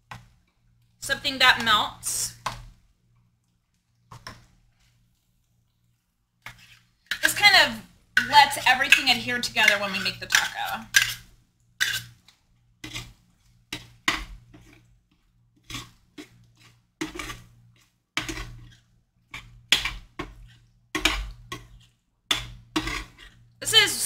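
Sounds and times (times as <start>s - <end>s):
metal spoon scraping a skillet: 6.4s - 14.9s, 15.6s - 24.0s.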